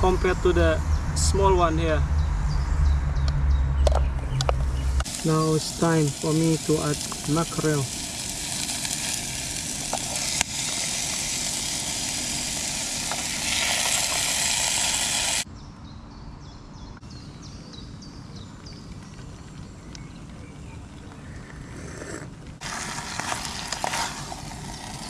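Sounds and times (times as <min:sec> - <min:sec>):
bird chirping: 0:00.1 - 0:06.6, 0:15.4 - 0:21.9
food sizzling in a pan: 0:05.0 - 0:15.5, 0:22.6 - 0:25.0
gas stove hissing: 0:05.0 - 0:15.5.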